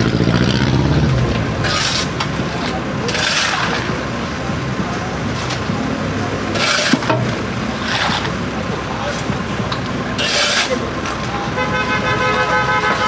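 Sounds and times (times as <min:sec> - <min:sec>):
diesel engine running: 0:00.0 - 0:13.0
shovels scraping concrete: 0:01.6 - 0:04.0, 0:06.5 - 0:08.4, 0:10.2 - 0:10.8.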